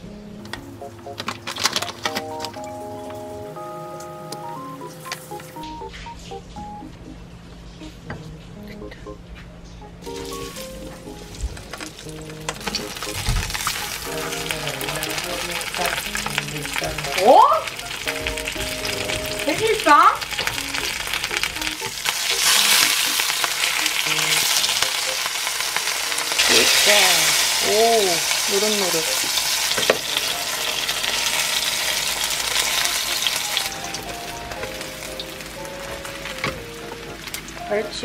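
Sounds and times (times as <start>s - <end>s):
background music: 0.0s - 38.0s
fish sizzling in oil: 10.0s - 38.0s.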